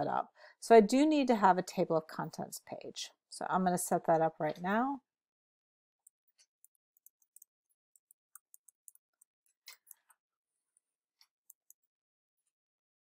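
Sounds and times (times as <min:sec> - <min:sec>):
computer keyboard typing: 0:06.6 - 0:10.0, 0:11.5 - 0:11.9.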